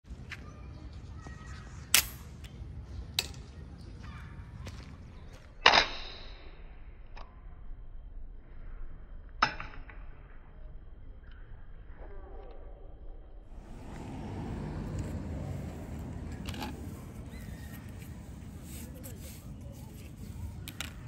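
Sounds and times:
plastic toy clicks and snaps: 0:01.9 - 0:02.6
low rumble: 0:13.5 - 0:18.8.

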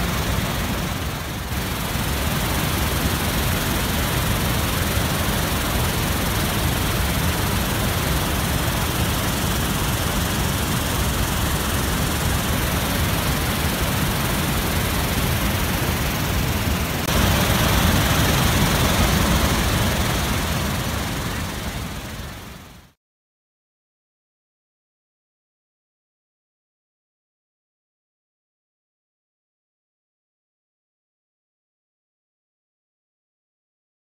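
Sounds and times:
waterfall rushing over rocks: 0:00.0 - 0:23.0.

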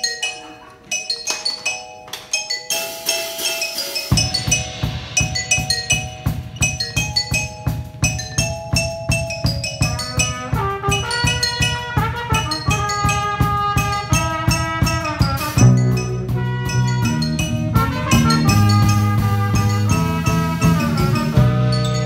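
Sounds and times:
marimba melody: 0:00.0 - 0:22.0
cymbal crash: 0:02.8 - 0:06.8
bass drum beat: 0:04.1 - 0:22.0.

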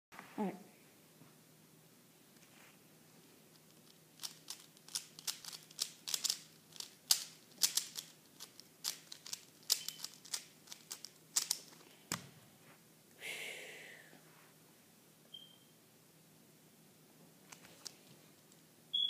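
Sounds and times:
speed cube clicking: 0:04.2 - 0:11.7.

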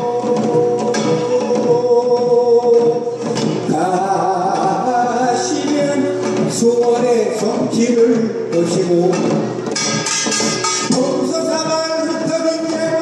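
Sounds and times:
man singing long notes: 0:00.0 - 0:09.4, 0:10.9 - 0:13.0
drum strokes: 0:00.0 - 0:13.0.

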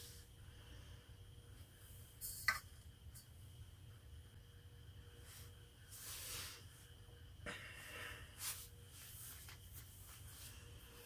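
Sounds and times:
person breathing: 0:00.0 - 0:01.4, 0:07.4 - 0:09.2, 0:10.2 - 0:11.0
steady low hum: 0:00.0 - 0:11.0.

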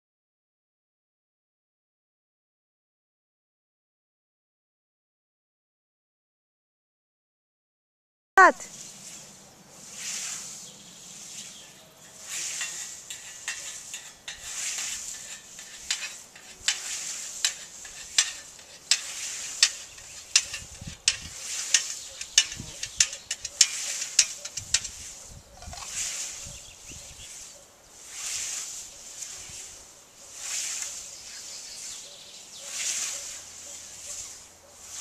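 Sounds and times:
scythes swishing through grass: 0:08.7 - 0:35.0.

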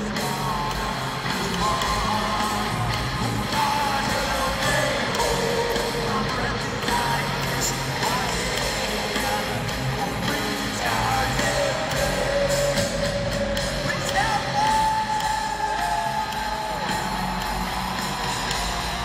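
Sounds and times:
live heavy metal band: 0:00.0 - 0:19.0
crowd yells: 0:12.3 - 0:19.0.

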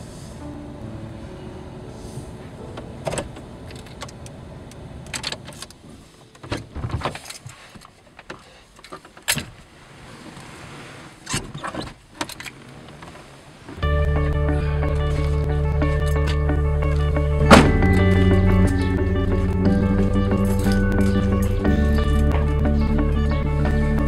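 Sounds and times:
clicks and clunks: 0:02.7 - 0:09.6, 0:11.3 - 0:13.2
truck engine rumble: 0:13.5 - 0:24.0.

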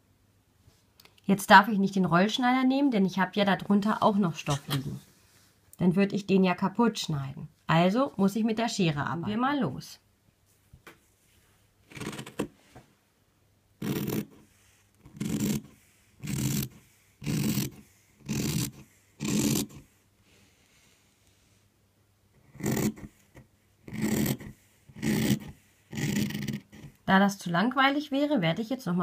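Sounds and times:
shears cutting fabric: 0:11.9 - 0:12.5, 0:13.8 - 0:19.8, 0:22.5 - 0:23.1, 0:23.9 - 0:26.9.

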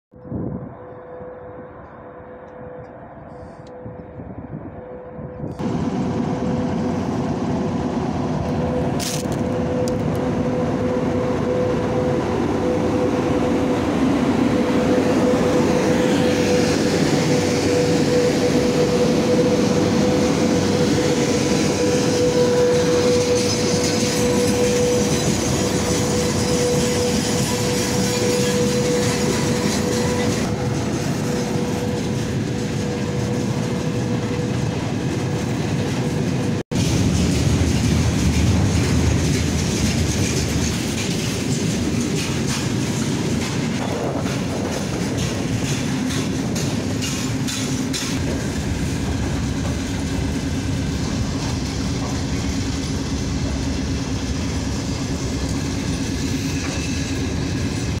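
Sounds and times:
train wheels clattering: 0:16.1 - 0:58.0.

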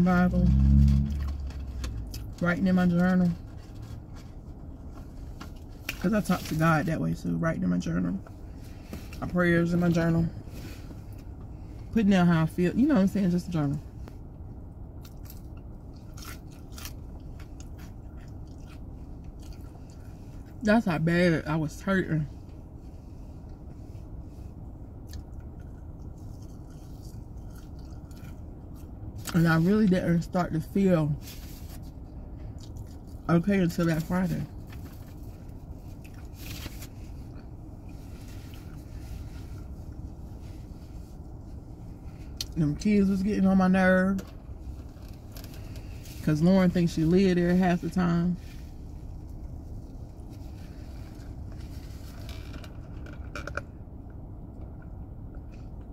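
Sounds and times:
car cabin rumble: 0:00.0 - 0:55.9
steady low hum: 0:00.0 - 0:55.9
person chewing fries: 0:15.0 - 0:20.1, 0:25.0 - 0:28.9.

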